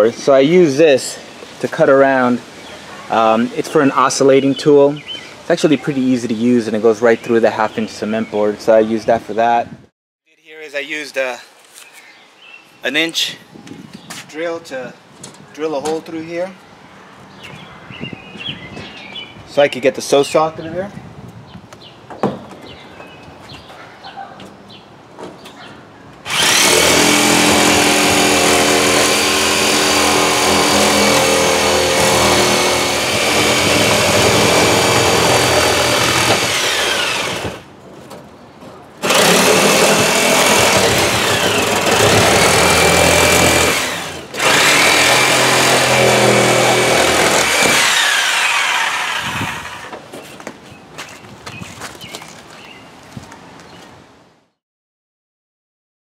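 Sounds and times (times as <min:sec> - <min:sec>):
oscillating multi-tool cutting board: 0:26.3 - 0:37.6.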